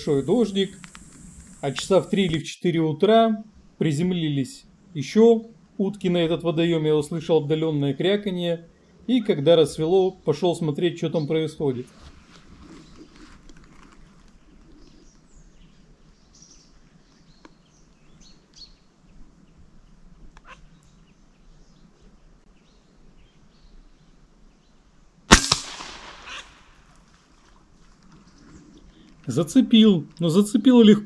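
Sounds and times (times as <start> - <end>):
small noise: 0.0 - 23.2
air rifle shot: 25.3 - 26.9.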